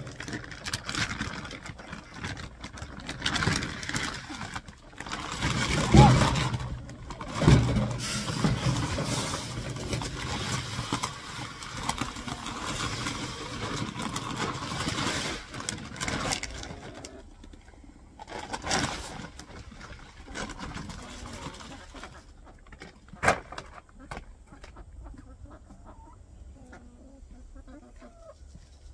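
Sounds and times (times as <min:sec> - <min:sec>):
paper sacks rustling: 0:00.0 - 0:17.3, 0:18.2 - 0:22.2
feed pouring into metal can: 0:03.2 - 0:16.8.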